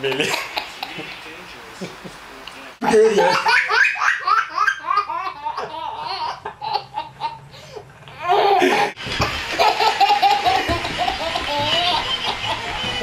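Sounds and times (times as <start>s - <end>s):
baby laughing: 2.8s - 7.4s, 8.1s - 13.0s.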